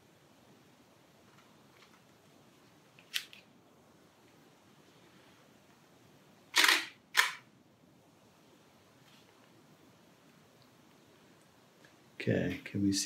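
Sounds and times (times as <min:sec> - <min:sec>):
camera shutter clacks: 0:06.5 - 0:07.4
light camera click: 0:06.6 - 0:07.4.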